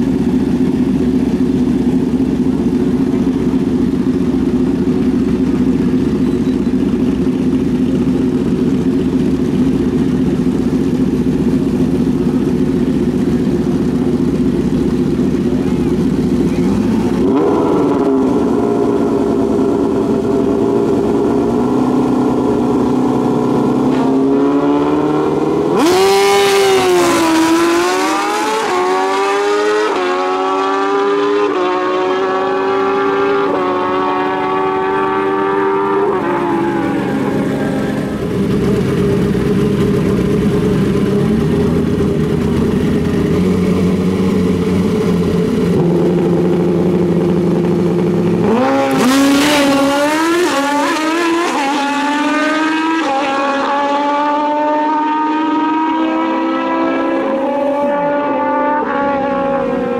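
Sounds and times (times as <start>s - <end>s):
motorcycles idling: 0.0s - 23.9s, 36.1s - 49.8s
motorcycles accelerating with upshifts: 0.0s - 59.9s
motorcycles revving: 0.0s - 59.9s.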